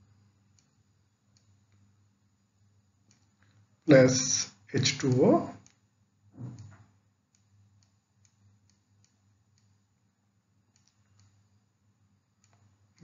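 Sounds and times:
low steady hum: 0.0 - 13.0
stylus tapping on tablet: 6.4 - 6.8.

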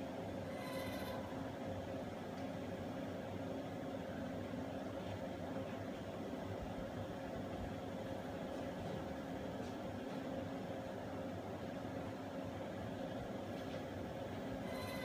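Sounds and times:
machine hum: 0.0 - 3.2, 14.2 - 15.0.

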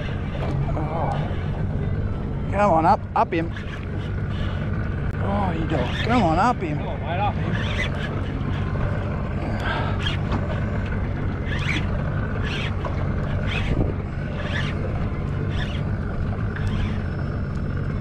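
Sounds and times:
boat motor idling: 0.0 - 18.0
wind on microphone: 13.4 - 17.0.

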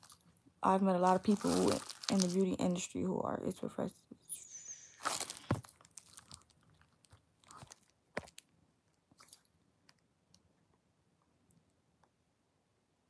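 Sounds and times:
faint clicks and crackles: 5.1 - 12.2.

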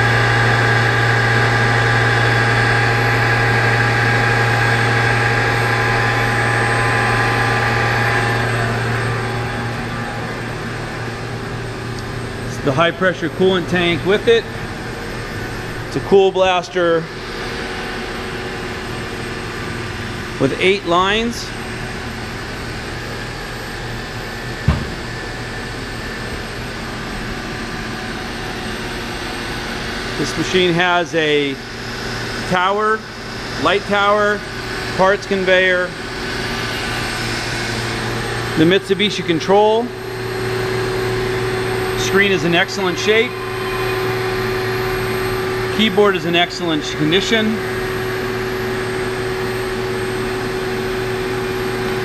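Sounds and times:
machine shop equipment humming: 0.0 - 52.0
short low thump: 24.6 - 25.1.

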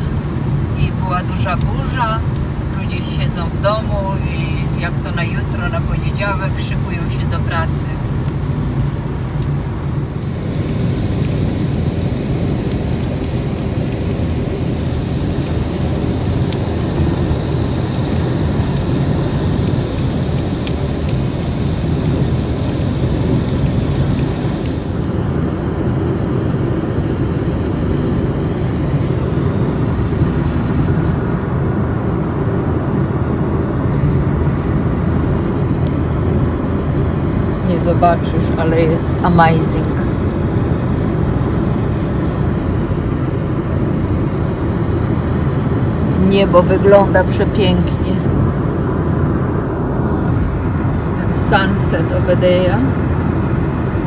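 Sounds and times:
tyre hiss on wet road: 0.0 - 25.0
car rumble inside cabin: 0.0 - 54.0.

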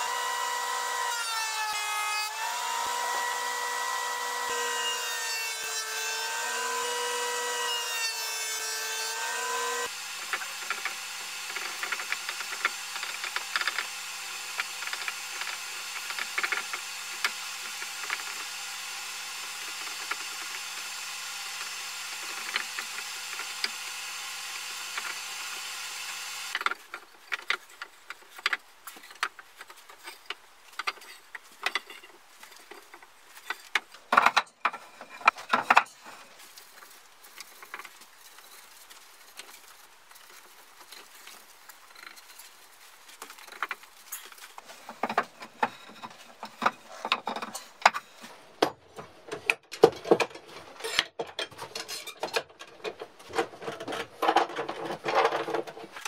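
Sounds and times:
boards and clamps clicking: 10.2 - 18.6, 19.4 - 20.9, 21.5 - 23.8, 26.5 - 36.0, 43.2 - 56.0.

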